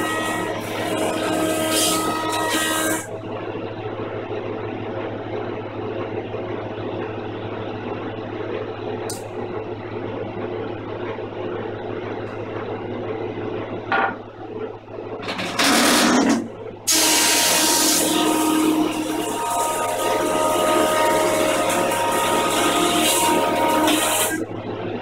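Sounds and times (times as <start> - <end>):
jointer-planer motor humming: 0.0 - 3.9, 15.2 - 24.6.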